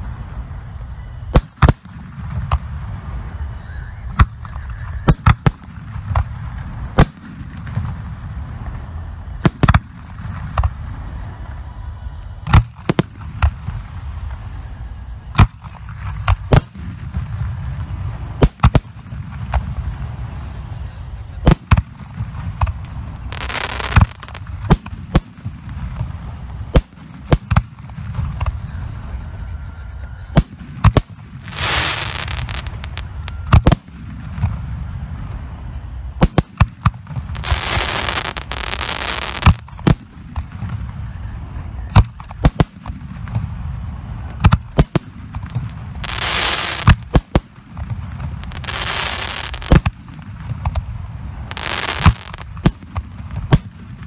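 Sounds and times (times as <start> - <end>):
steady low rumble: 0.0 - 54.0
hissing noise: 8.4 - 34.2, 34.8 - 54.0
firework shells bursting: 44.3 - 54.0.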